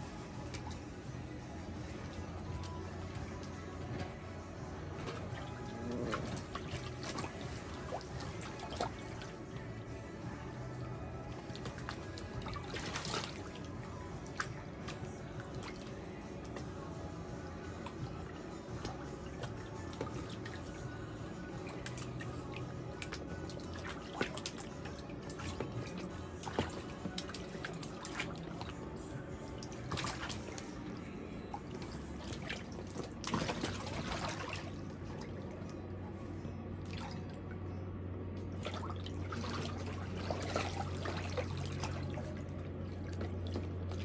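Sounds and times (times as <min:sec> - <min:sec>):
water splashing and dripping: 0:04.8 - 0:10.2, 0:10.8 - 0:16.8, 0:17.8 - 0:20.9, 0:21.6 - 0:28.8, 0:29.5 - 0:35.8, 0:38.5 - 0:44.0.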